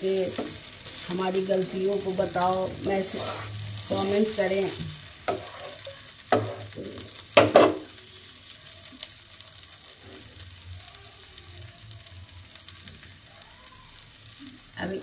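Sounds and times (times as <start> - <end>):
faint pan sizzle: 0.0 - 15.0
spatula knocking in frying pan: 6.3 - 7.9.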